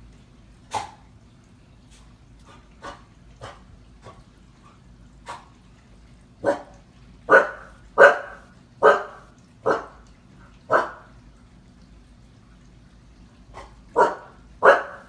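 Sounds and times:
puppy barking: 6.4s - 6.7s, 7.3s - 10.0s, 10.7s - 11.0s, 14.0s - 15.0s.

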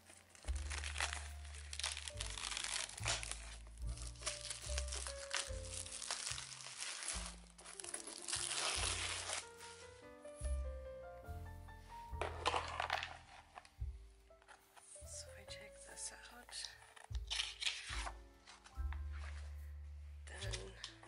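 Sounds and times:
plastic wrapping crinkling and tearing: 0.0s - 10.0s, 12.2s - 15.1s, 16.5s - 19.5s.

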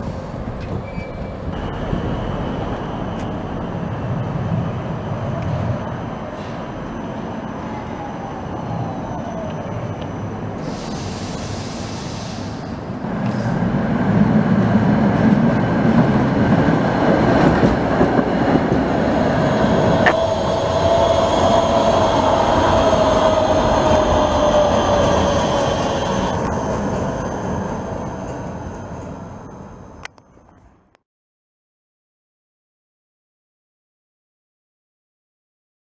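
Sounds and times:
tram rail rumble: 0.0s - 31.0s
steady whine dropping in pitch: 19.0s - 28.1s.

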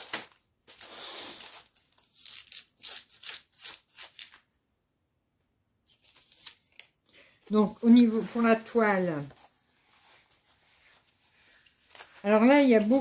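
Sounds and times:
plastic packaging crinkling: 0.0s - 4.4s.

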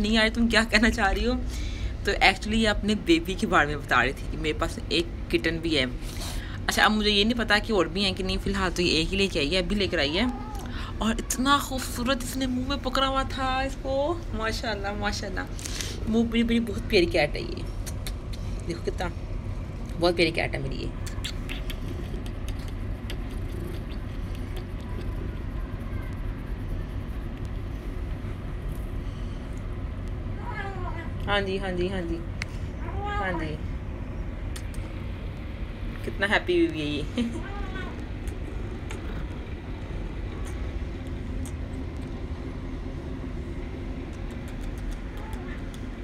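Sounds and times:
cat purring: 21.5s - 28.2s, 38.7s - 40.4s.

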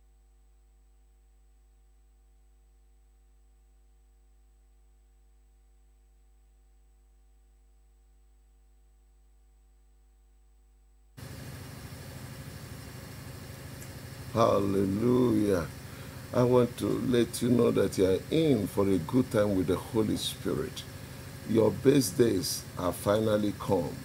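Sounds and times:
faint electrical hum: 11.2s - 24.0s
microphone hiss and hum: 11.2s - 24.0s.

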